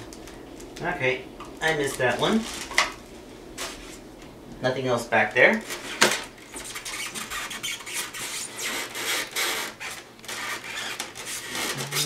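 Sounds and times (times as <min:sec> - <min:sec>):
hands scraping styrofoam: 0:05.7 - 0:12.0.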